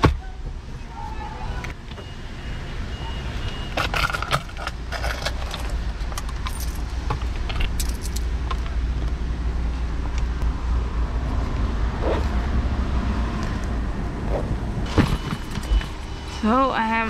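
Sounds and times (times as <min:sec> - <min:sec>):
light metallic jingling: 0:07.6 - 0:08.3.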